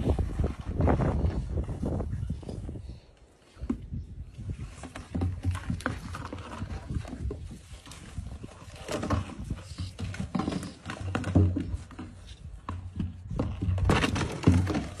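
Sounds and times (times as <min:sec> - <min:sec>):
bucket knocking and scraping: 0:03.6 - 0:15.0.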